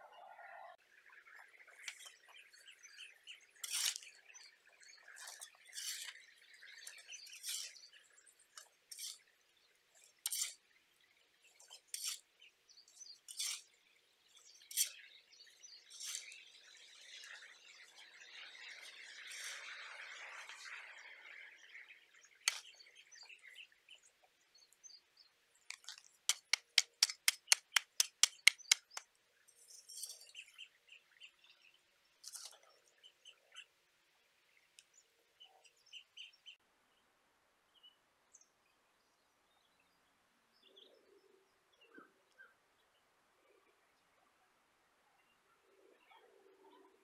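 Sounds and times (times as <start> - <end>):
shovel scraping soil: 3.6 - 4.2, 5.1 - 8.0, 8.6 - 9.3, 9.9 - 10.6, 11.6 - 12.3, 13.0 - 13.8, 14.4 - 20.7, 22.5 - 22.8, 25.7 - 29.0, 29.6 - 30.4, 32.2 - 32.7
sharp clicks: 25.7 - 29.0.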